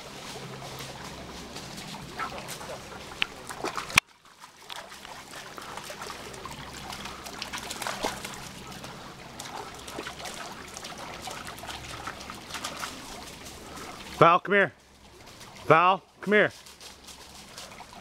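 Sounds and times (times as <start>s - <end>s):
water trickling: 0.0s - 18.0s
small ticks and crackles: 16.5s - 18.0s.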